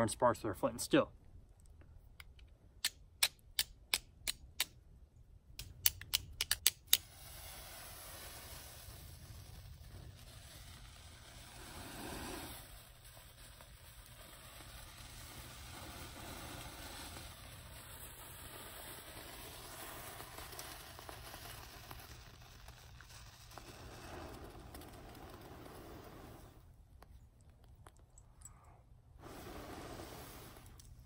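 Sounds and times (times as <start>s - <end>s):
breathy rush of blowing: 7.0s - 13.6s, 23.1s - 26.8s, 28.4s - 31.0s.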